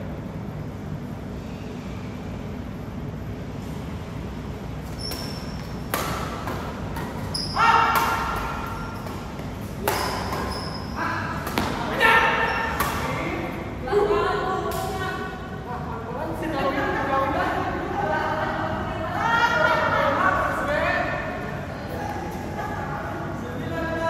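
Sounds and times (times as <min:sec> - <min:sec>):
racket hitting shuttlecock: 0:04.9 - 0:13.4.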